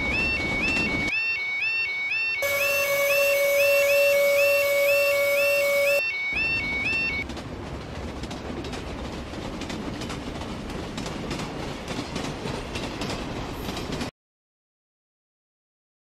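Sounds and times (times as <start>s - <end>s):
freight train rumbling past: 2.4s - 14.1s
wheels clicking over rail joints: 6.4s - 14.1s.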